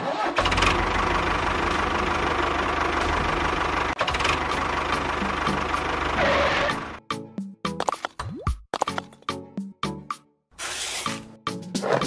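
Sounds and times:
tractor engine chugging: 0:00.1 - 0:07.0.

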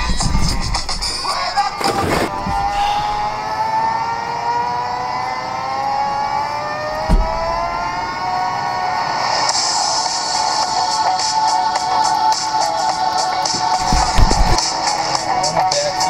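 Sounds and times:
thump: 0:01.8 - 0:03.4, 0:07.0 - 0:07.8, 0:13.8 - 0:14.6.

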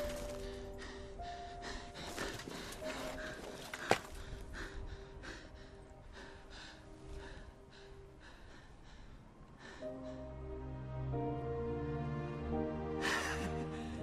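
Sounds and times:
man panting heavily: 0:00.0 - 0:10.8
music: 0:00.0 - 0:14.0.

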